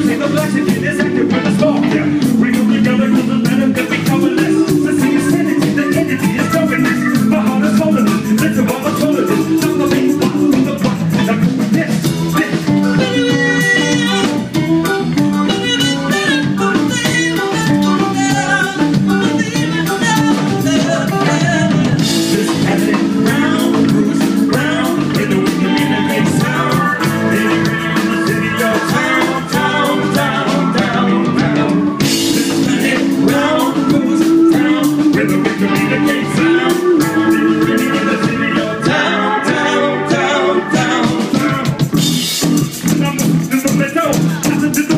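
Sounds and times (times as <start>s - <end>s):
drum kit: 0.0s - 44.9s
electric guitars: 0.0s - 44.9s.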